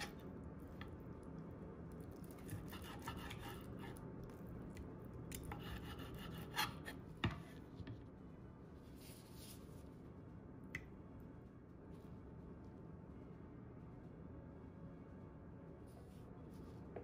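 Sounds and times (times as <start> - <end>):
knife slicing steak: 2.4 - 4.0.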